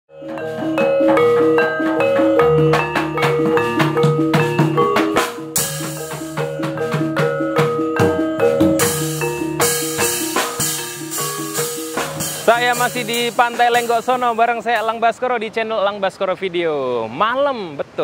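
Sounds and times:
metallophones ringing pattern: 0.1s - 15.2s
hand drum strokes: 0.2s - 15.0s
bright cymbal crash: 5.3s - 6.6s, 8.8s - 14.9s.

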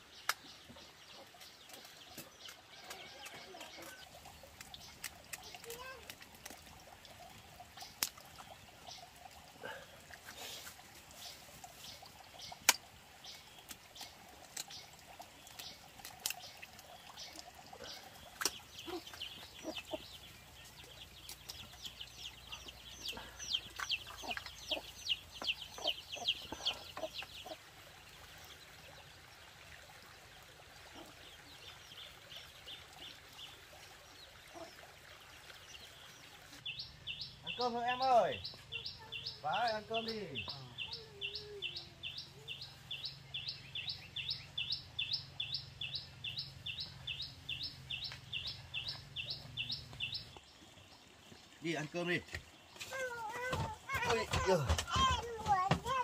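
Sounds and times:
birds chirping: 0.0s - 29.1s, 30.3s - 56.0s
chickens clucking: 17.8s - 27.6s.

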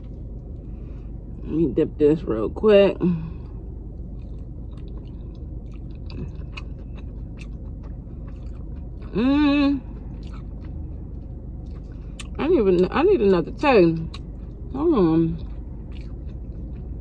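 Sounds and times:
person chewing: 4.0s - 12.4s, 15.4s - 17.0s.

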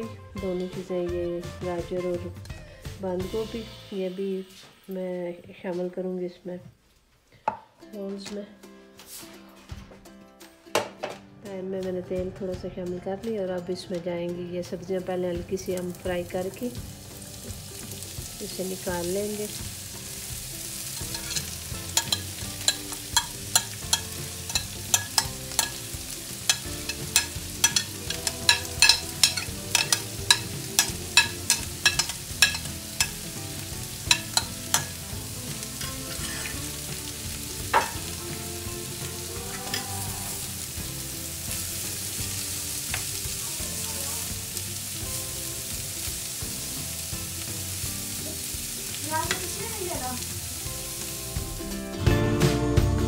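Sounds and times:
vegetables sizzling in oil: 15.4s - 52.2s
metal spoon stirring: 21.0s - 33.4s, 34.0s - 35.1s, 35.8s - 36.8s.

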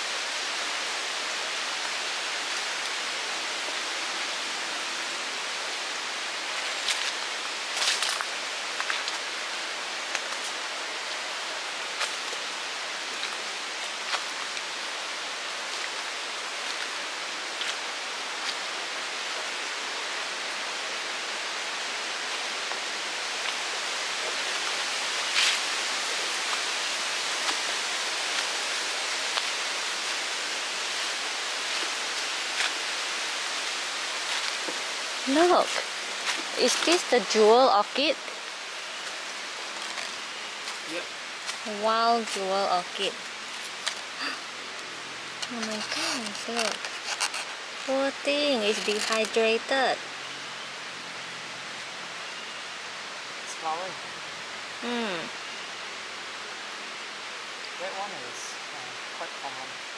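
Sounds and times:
rainforest ambience hiss: 0.0s - 59.9s
footsteps on dry leaves: 6.5s - 9.4s.

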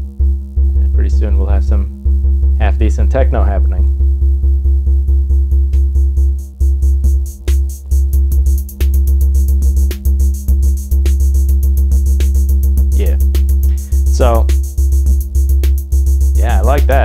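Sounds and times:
drum machine pattern: 0.0s - 17.0s
heavy synth bass: 0.0s - 17.0s
steady synth tones: 0.0s - 17.0s.

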